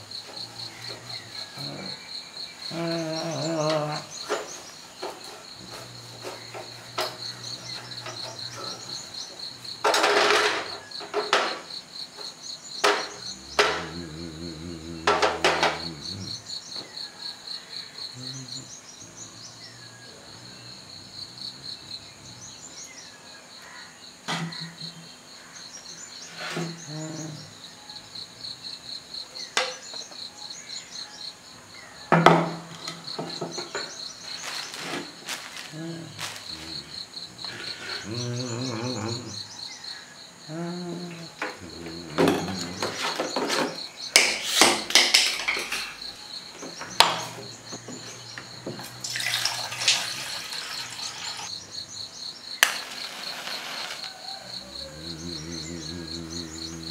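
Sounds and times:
insects chirping: 0.0s - 56.9s
sharp knocks and clatters: 9.8s - 14.1s, 15.0s - 16.0s, 42.2s - 49.0s.

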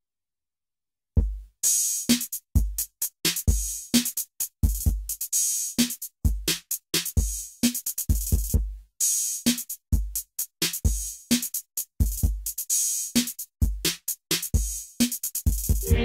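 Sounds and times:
drum machine beat: 1.2s - 16.0s.

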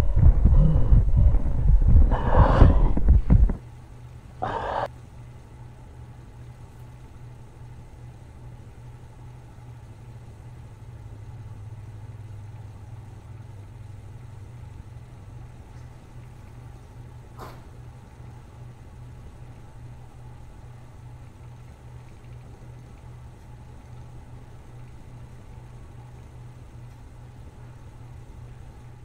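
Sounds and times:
loud low rumbling roar: 0.0s - 3.2s
faint steady low hum: 0.0s - 29.0s.

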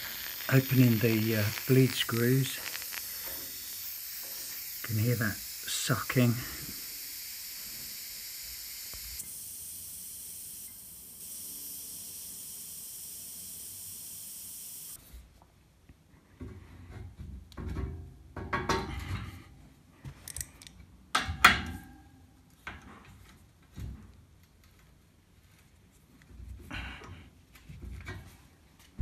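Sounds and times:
air hissing into radiator: 0.0s - 15.0s.

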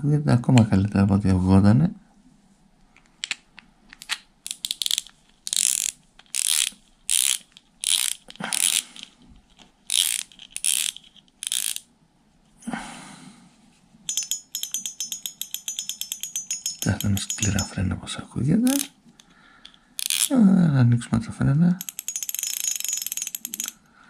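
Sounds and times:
fishing reel drag clicking: 4.5s - 9.1s, 9.9s - 11.8s, 20.0s - 20.3s, 21.8s - 23.8s.

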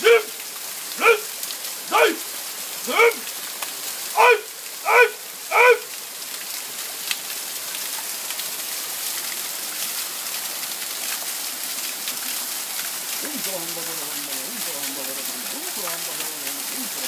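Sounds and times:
man chanting syllables: 0.0s - 0.3s, 1.0s - 1.3s, 1.9s - 2.2s, 2.8s - 3.2s, 4.2s - 5.8s
waterfall splashing on rock: 0.0s - 17.0s.

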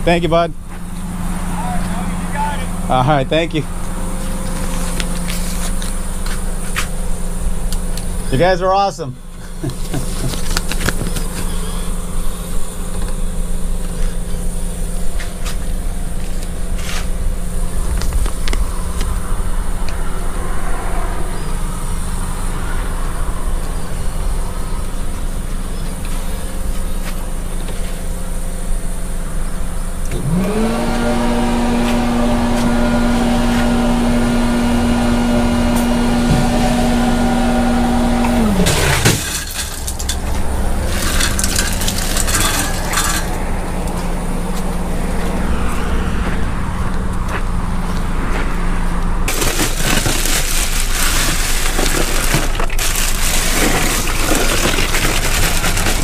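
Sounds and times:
motor whine: 0.0s - 56.0s
vehicle engine running: 0.0s - 56.0s
rustling and clattering: 38.6s - 43.4s, 49.3s - 56.0s.

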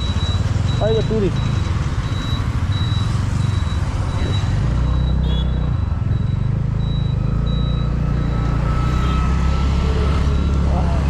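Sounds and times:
high beep: 0.0s - 11.0s.

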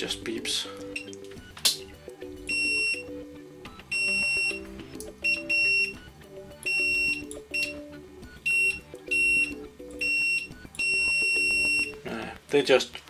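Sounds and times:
multimeter high-pitched beeps: 0.9s - 1.2s, 2.4s - 12.0s.

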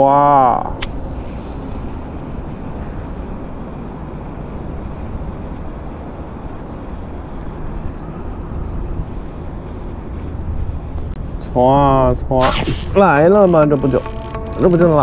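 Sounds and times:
wind noise on microphone: 0.0s - 15.0s.

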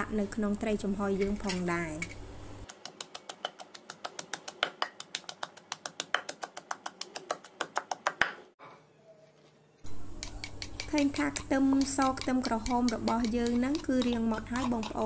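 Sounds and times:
wooden pestle pounding in mortar: 2.7s - 8.4s, 10.2s - 15.0s.

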